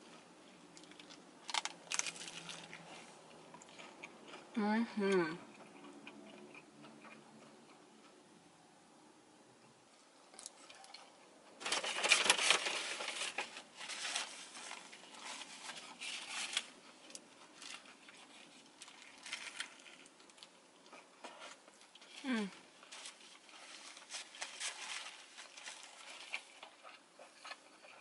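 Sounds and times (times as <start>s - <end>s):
crisp chewing: 0.1s - 4.6s, 5.4s - 8.2s, 10.3s - 28.0s
paper rustling: 11.6s - 20.0s, 22.8s - 26.4s.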